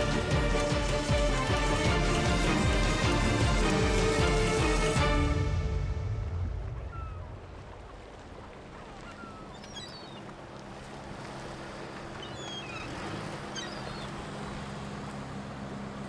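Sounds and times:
boat engine humming: 0.0s - 16.0s
bird chirps: 12.2s - 14.2s.

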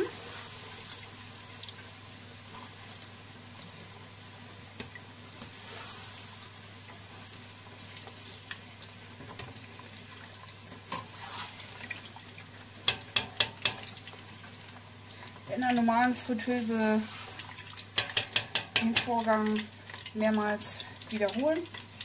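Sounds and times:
fries bubbling in hot oil: 0.0s - 22.0s
slotted spoon clicking on pot: 18.0s - 19.1s.

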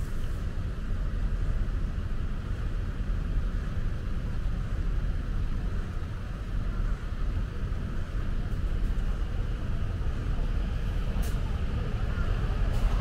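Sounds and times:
low rumble of cars: 0.0s - 13.0s.

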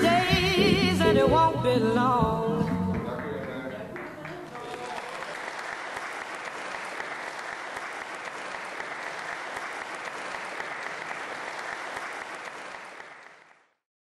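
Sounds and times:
audience applauding: 2.8s - 13.8s.

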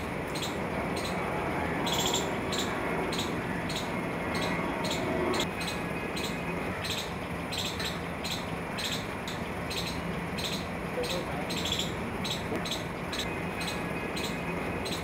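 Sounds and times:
low hum: 0.0s - 10.9s.

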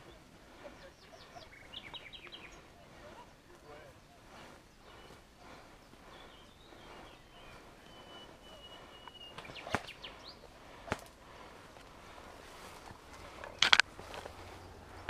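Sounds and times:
whistled bird call: 0.0s - 10.7s
footsteps rustling through brush: 0.0s - 15.0s.

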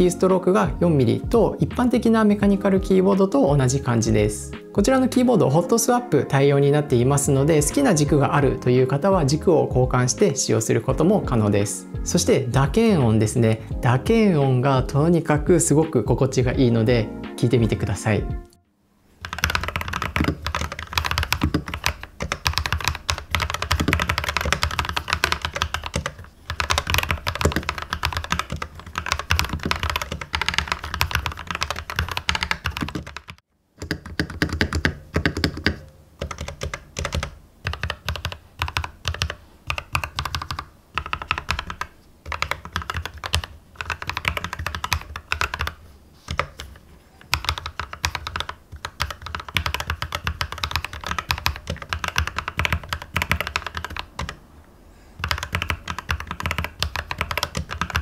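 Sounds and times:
soft keyboard typing: 19.2s - 54.4s, 55.2s - 58.0s.

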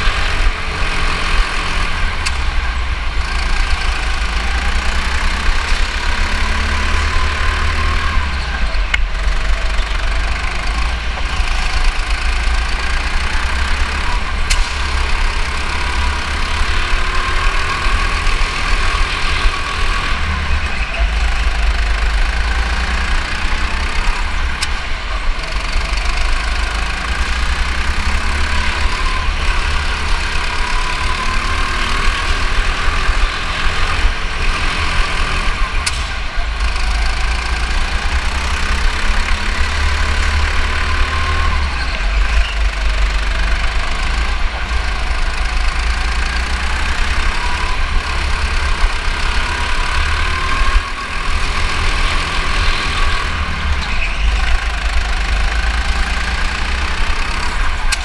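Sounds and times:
go-kart engine rising and falling: 0.0s - 58.0s.

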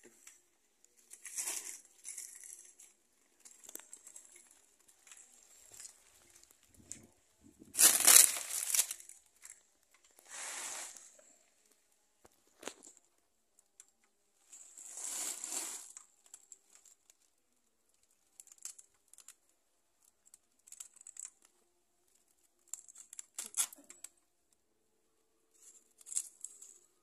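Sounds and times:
paper rustling and tearing: 7.7s - 9.5s, 14.8s - 16.0s.

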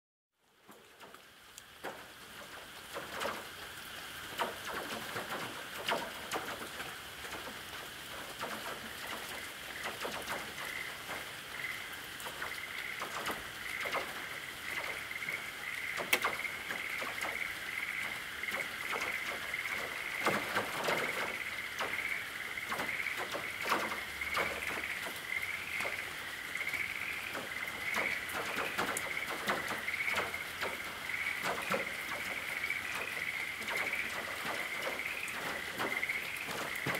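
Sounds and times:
rain on a tin roof: 0.4s - 36.9s.

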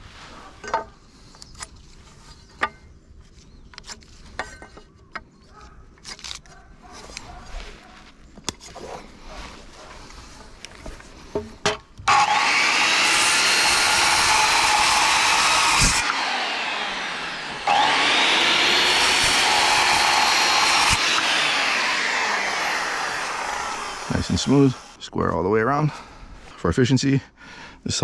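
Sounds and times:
circular saw cutting wood: 12.0s - 25.0s.

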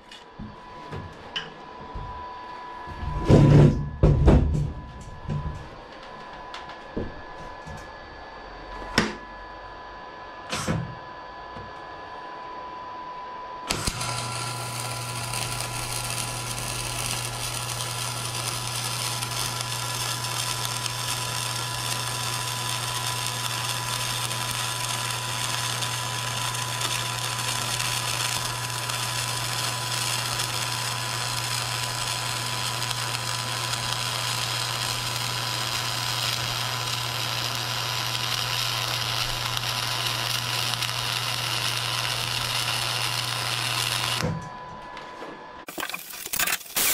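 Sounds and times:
welding arc hissing: 13.7s - 44.2s, 45.7s - 46.9s.

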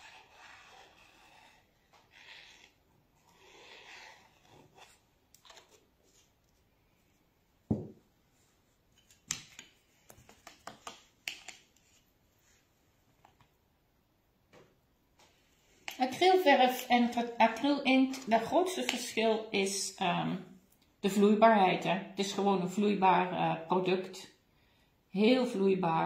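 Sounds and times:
glass bottle knocking on table: 7.7s - 8.0s.

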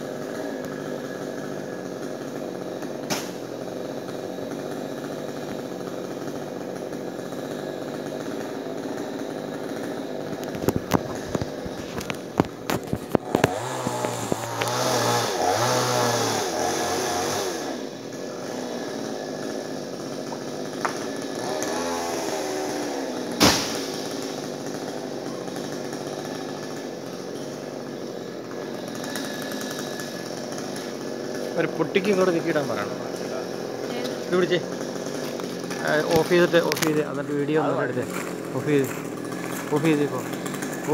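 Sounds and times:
chainsaw running: 0.0s - 40.9s
loud thud: 23.4s - 23.9s
sharp knocks: 23.4s - 23.9s.

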